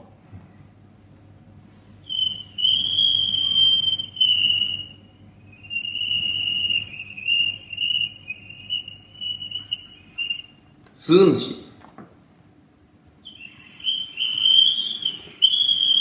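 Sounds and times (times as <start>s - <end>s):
man whistling cricket chirps: 2.0s - 10.8s, 13.3s - 16.0s.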